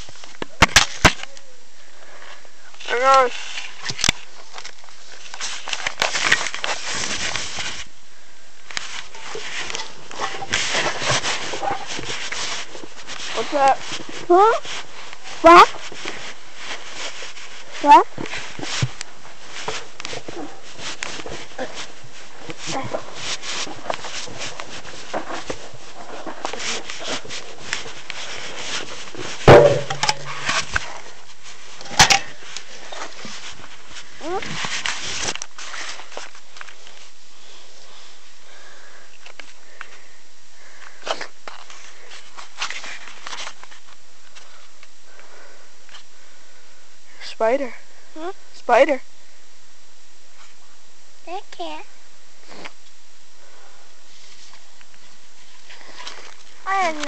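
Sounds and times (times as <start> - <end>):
handling noise on microphone: 2.8 - 8.0, 8.7 - 38.4, 41.0 - 44.9
phone handling rustling and crackling: 18.3 - 31.0
loud thump: 29.5 - 30.4.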